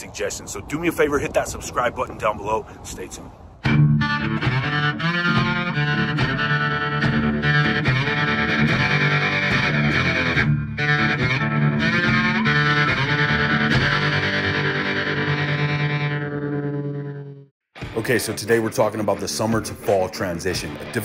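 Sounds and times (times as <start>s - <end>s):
rock music with electric guitar: 3.7s - 17.2s, 17.8s - 21.0s.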